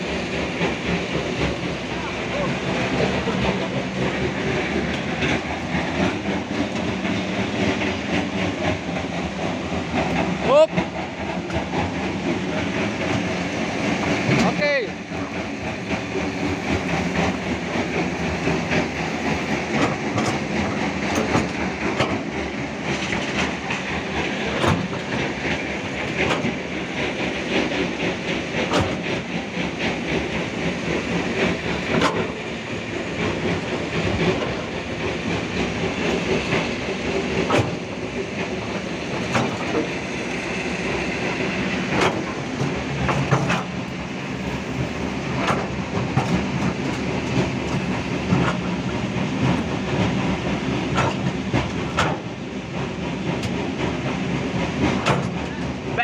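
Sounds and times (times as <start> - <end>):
excavator bucket clanking: 41.9 - 44.0, 54.9 - 55.6.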